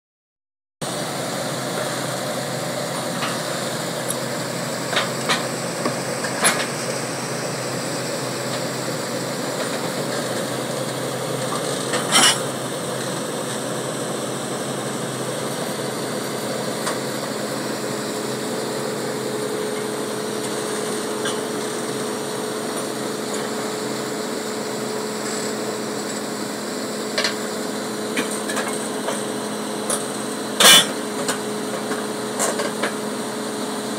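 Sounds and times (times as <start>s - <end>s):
diesel engine running: 0.8s - 33.9s
metal track clanks: 11.6s - 12.6s, 30.6s - 31.4s.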